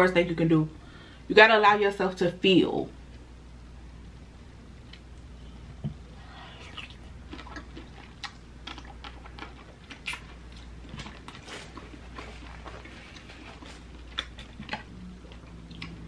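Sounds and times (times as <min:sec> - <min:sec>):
lip smacks and chewing clicks: 0:06.7 - 0:16.0.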